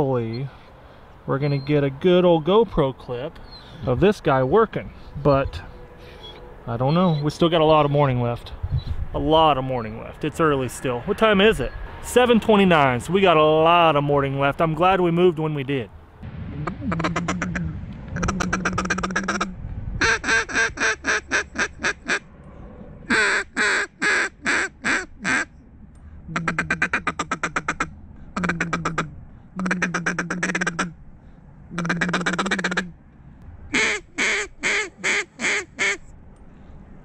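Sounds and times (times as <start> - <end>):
duck call quacking: 16.7 - 17.6, 18.2 - 22.2, 23.1 - 25.5, 26.3 - 30.9, 31.7 - 32.9, 33.7 - 36.0.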